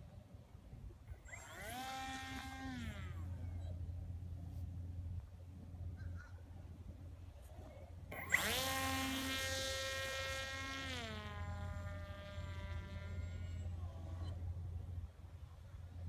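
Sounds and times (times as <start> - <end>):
model plane motor whining: 1.2 - 3.8, 8.1 - 14.7.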